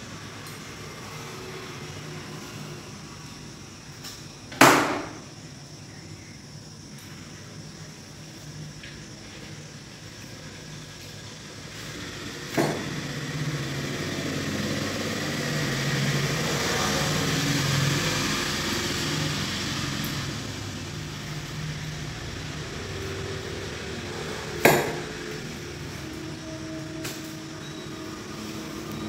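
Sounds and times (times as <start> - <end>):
motor vehicle passing: 11.7 - 29.0
sharp knocks: 24.6 - 25.1.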